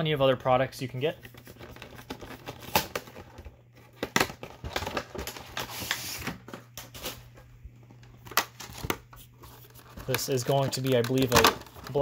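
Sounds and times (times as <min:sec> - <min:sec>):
low steady hum: 0:00.0 - 0:12.0
plastic packaging rustling: 0:01.2 - 0:12.0.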